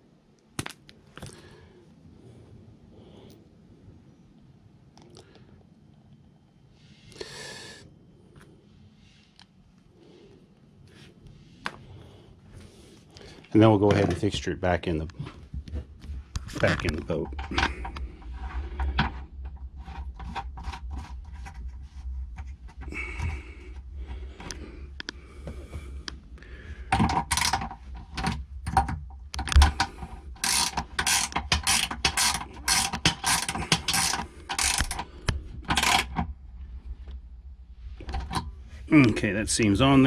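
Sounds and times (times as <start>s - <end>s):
ratchet wrench clicking: 29.5s - 35.1s, 35.7s - 36.2s.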